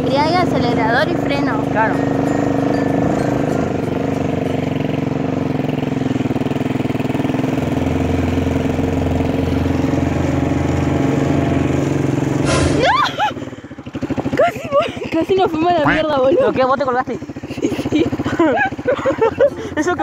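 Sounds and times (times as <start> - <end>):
quad bike engine running: 0.0 - 20.0
sudden noisy burst: 12.4 - 13.0
short rising cry: 12.4 - 13.4.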